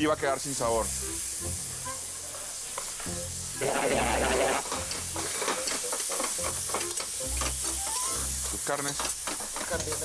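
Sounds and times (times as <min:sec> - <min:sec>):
background music: 0:00.0 - 0:02.3, 0:03.0 - 0:08.7
meat sizzling in a pot: 0:00.0 - 0:10.0
utensils clicking on a pot: 0:04.6 - 0:10.0.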